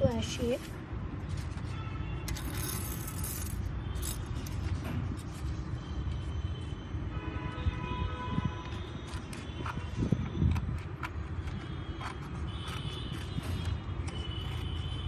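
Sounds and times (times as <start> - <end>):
paper rustling and crackling: 0.6 - 3.4.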